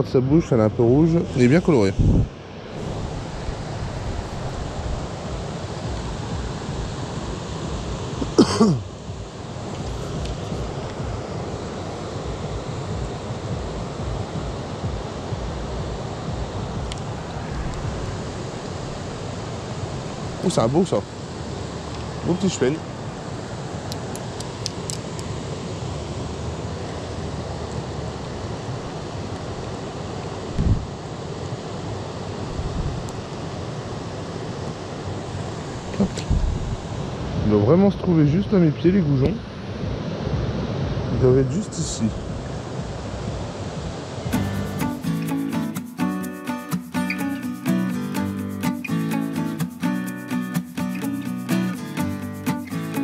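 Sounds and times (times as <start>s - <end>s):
river water rushing: 0.5s - 36.0s, 42.6s - 53.0s
wind rumble on microphone: 0.7s - 20.5s, 24.5s - 38.2s, 38.9s - 44.4s.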